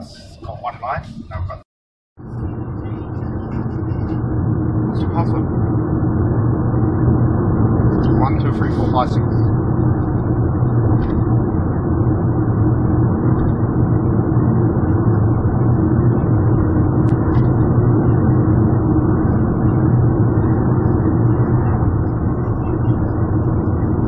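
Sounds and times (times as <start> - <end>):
car engine and tyres droning: 2.2 - 24.0.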